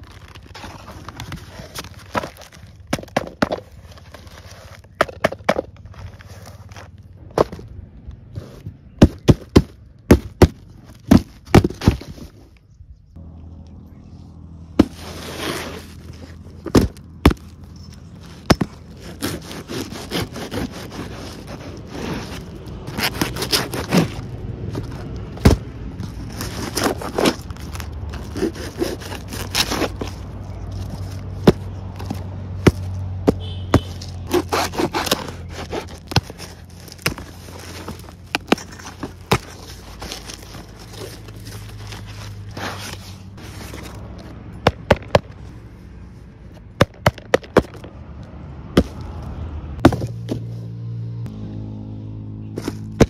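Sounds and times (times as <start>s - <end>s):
cardboard boxes torn open: 0.0s - 5.2s, 14.8s - 44.0s.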